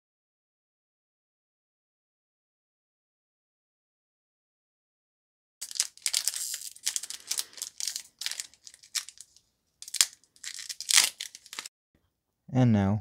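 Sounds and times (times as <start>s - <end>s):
foil wrapper crinkling: 5.6s - 11.7s
sharp crack: 5.6s - 11.7s.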